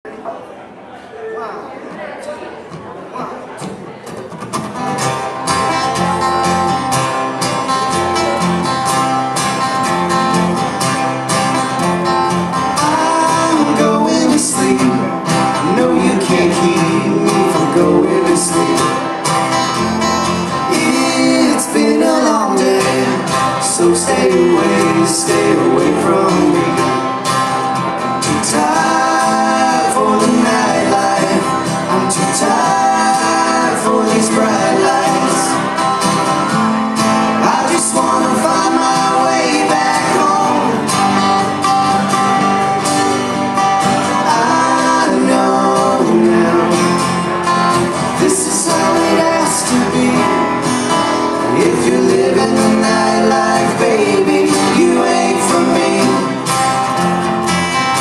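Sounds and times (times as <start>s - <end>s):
acoustic guitars strumming: 2.7s - 58.0s
man singing: 12.6s - 36.3s, 37.2s - 42.1s, 43.8s - 56.7s.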